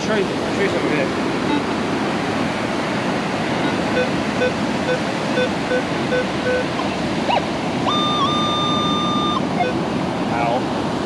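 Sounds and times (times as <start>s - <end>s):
surf: 0.0s - 11.0s
wind: 0.0s - 11.0s
metal detector beeps: 3.6s - 9.8s
rising chirp: 6.7s - 9.7s.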